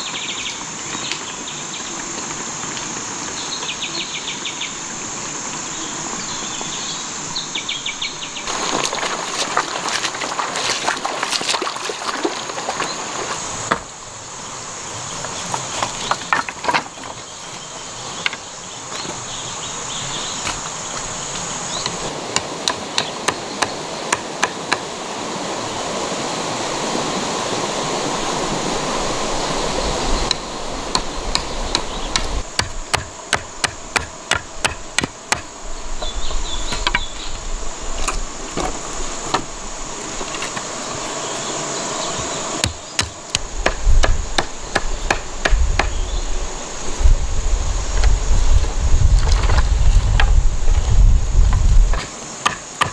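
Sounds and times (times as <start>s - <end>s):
insects droning: 0.0s - 52.9s
machete chopping wood: 22.3s - 24.8s, 30.9s - 35.5s, 42.6s - 46.0s, 51.9s - 52.9s.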